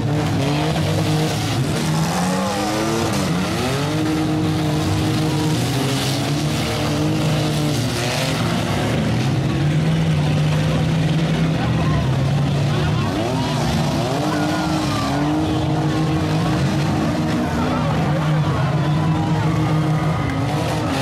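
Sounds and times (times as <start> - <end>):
arena crowd din: 0.0 - 21.0
truck engines revving: 0.0 - 21.0.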